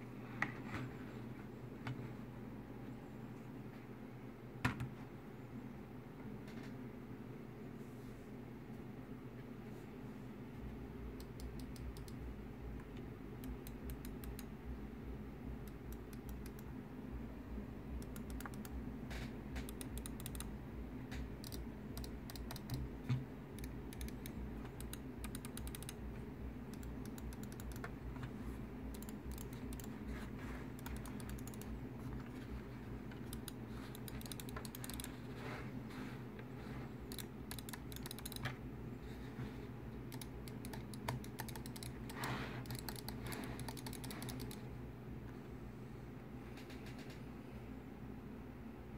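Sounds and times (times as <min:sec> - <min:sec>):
mouse buttons clicking: 0:19.6 - 0:20.5, 0:26.7 - 0:28.3, 0:28.9 - 0:30.2, 0:30.8 - 0:32.3, 0:33.1 - 0:35.2, 0:37.1 - 0:38.6, 0:40.1 - 0:44.6.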